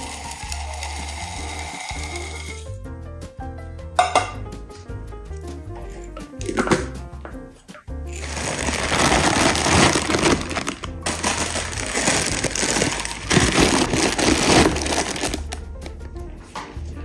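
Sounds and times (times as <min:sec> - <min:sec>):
background music: 0:00.0 - 0:17.0
crinkling rattling handling noise: 0:08.1 - 0:15.6.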